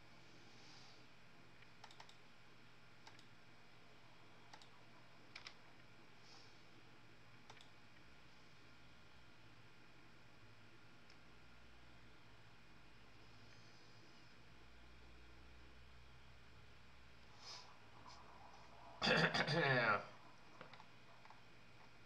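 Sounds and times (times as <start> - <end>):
room hum: 0.0 - 22.0
keyboard and mouse clicks: 1.6 - 2.2, 3.0 - 3.3, 4.5 - 5.6, 7.4 - 7.8, 20.6 - 21.4.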